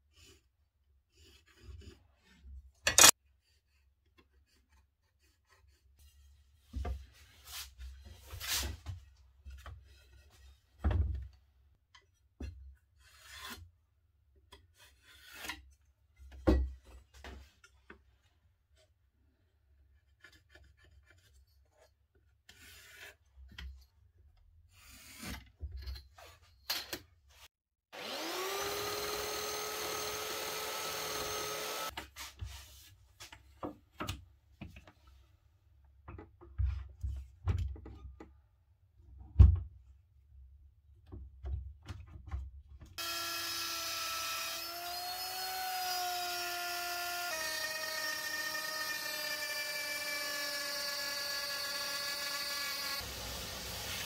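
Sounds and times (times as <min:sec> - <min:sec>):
electric power tool whining: 0:27.9 - 0:31.9, 0:43.0 - 0:54.0
router cutting into wood: 0:27.9 - 0:31.9, 0:43.0 - 0:54.0.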